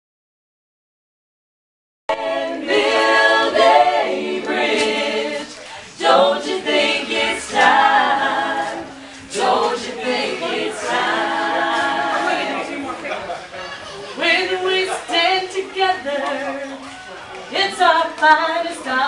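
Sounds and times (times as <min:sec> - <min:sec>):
voices singing without instruments: 0:02.1 - 0:13.1, 0:14.2 - 0:19.0.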